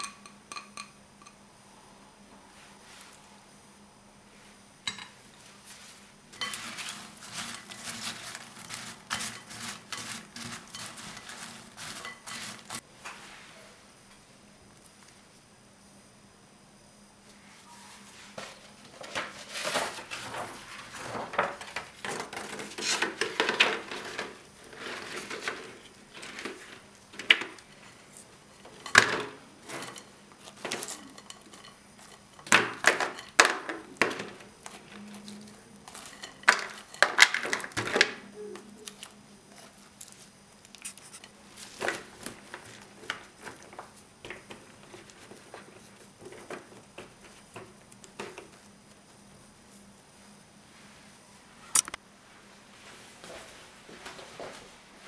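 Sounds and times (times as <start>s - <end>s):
plastic film rustling: 5.9s - 12.8s, 29.6s - 38.2s, 38.9s - 48.7s.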